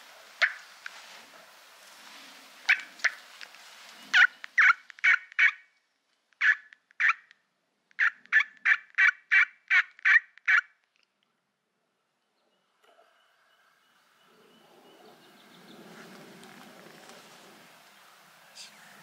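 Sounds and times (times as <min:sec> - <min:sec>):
turkey yelps: 0:00.4 - 0:00.6, 0:02.7 - 0:03.2, 0:04.1 - 0:05.6, 0:06.4 - 0:07.2, 0:08.0 - 0:10.7.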